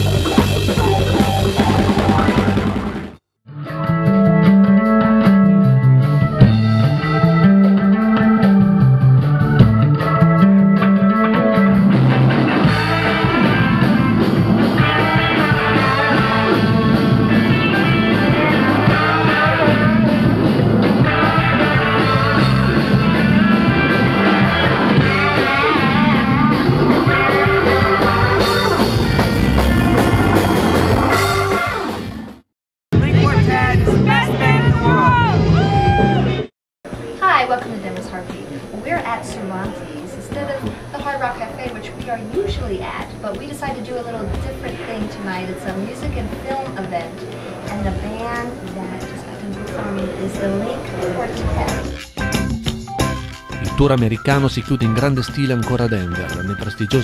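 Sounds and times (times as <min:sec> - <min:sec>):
live rock band with organ: 0:00.0 - 0:03.1, 0:04.6 - 0:32.1, 0:51.9 - 0:57.0
repeating bass line: 0:00.0 - 0:32.0, 0:51.5 - 0:57.0.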